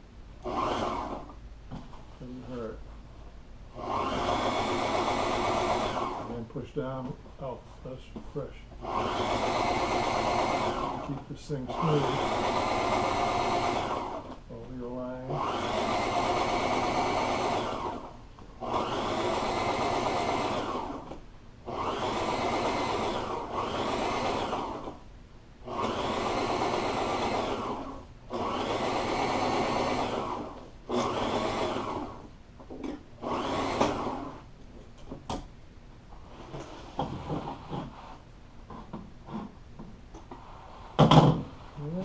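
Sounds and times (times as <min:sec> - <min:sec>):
sewing machine stitching: 0:00.4 - 0:01.3, 0:03.8 - 0:06.4, 0:08.8 - 0:14.4, 0:15.3 - 0:25.0, 0:25.6 - 0:32.3, 0:33.2 - 0:34.4.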